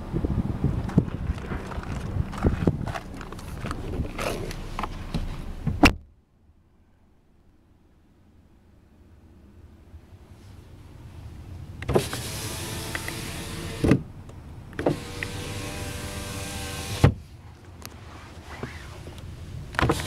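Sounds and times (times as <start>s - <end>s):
electric window motor whirring: 11.8s - 14.0s, 14.8s - 17.2s
window clunks: 11.8s - 14.1s, 14.8s - 17.2s, 19.8s - 20.0s.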